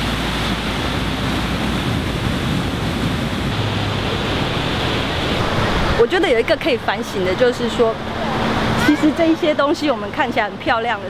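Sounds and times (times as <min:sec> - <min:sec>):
surf on a sandy beach: 0:00.0 - 0:11.0
wind on microphone: 0:00.0 - 0:11.0.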